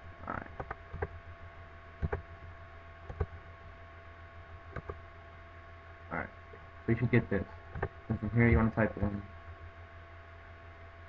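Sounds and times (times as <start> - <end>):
steady electrical hum: 0.0 - 11.0
computer mouse clicking: 0.6 - 1.1, 2.0 - 2.2, 3.1 - 3.4, 4.7 - 5.0, 7.7 - 8.0.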